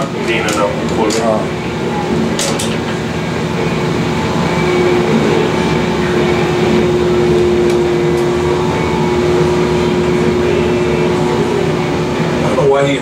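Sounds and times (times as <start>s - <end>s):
crane hoist machinery humming: 0.0s - 13.0s
steady tone: 0.6s - 13.0s.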